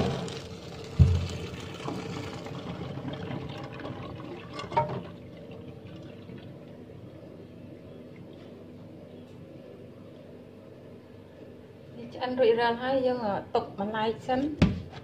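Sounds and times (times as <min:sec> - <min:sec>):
water pouring into colander: 0:00.0 - 0:06.8.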